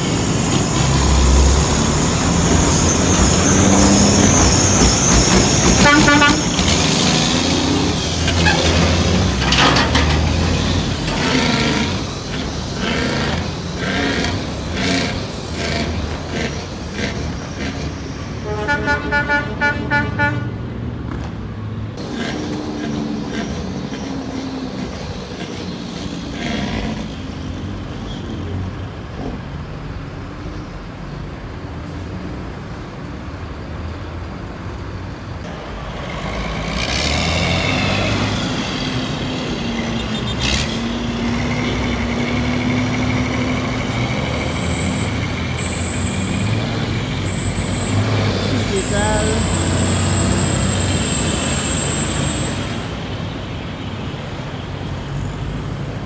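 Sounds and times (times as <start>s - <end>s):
truck engine pulling under load: 0.0s - 19.0s, 35.2s - 56.0s
heavy truck engines and road noise: 0.0s - 56.0s
horn toots: 5.6s - 6.8s, 18.4s - 20.7s.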